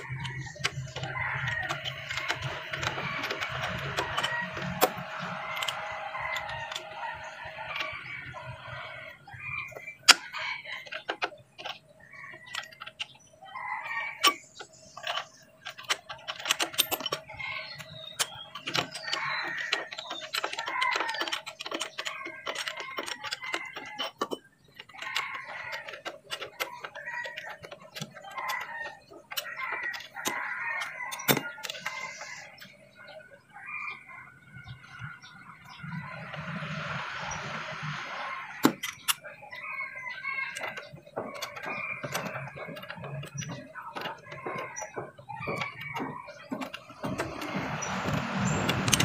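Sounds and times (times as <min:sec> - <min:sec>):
chickens clucking: 0:00.0 - 0:49.0
rooster crowing: 0:13.6 - 0:14.3
metallic clicks from hand tools: 0:14.2 - 0:32.7, 0:36.3 - 0:39.2, 0:40.5 - 0:49.0.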